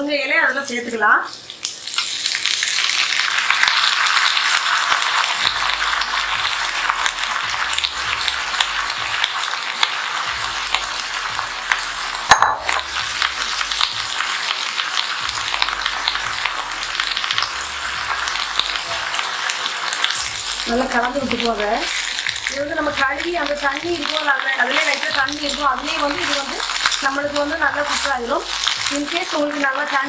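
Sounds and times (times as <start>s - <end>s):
leaves sizzling in hot oil: 0.0s - 30.0s.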